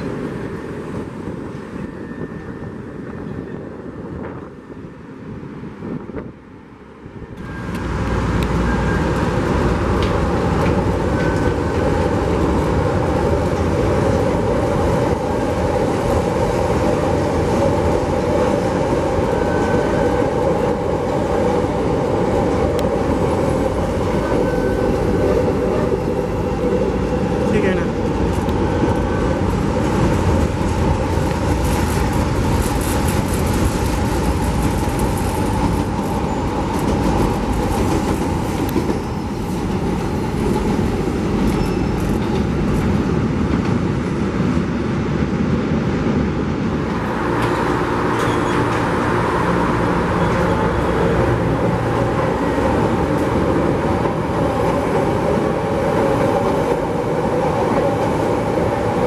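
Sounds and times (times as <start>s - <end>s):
trains rumbling on elevated track: 0.0s - 59.0s.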